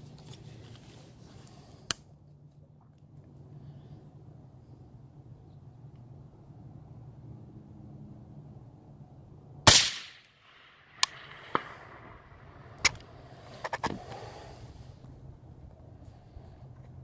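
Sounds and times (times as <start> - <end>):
suppressed rifle shot: 9.7 - 13.0.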